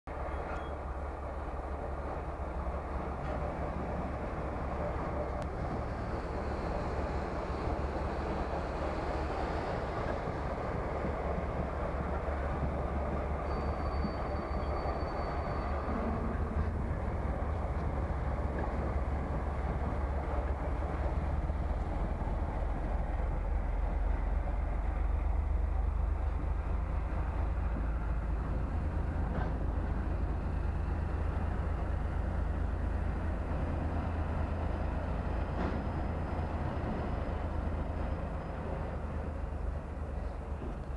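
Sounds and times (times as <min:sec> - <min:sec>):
diesel locomotive rumble: 0:00.1 - 0:40.9.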